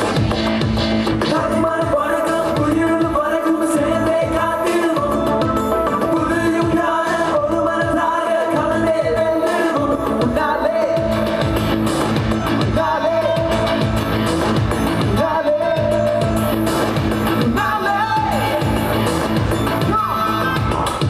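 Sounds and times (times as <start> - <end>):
dance beat music: 0.0 - 21.0
man singing into a microphone: 1.2 - 21.0.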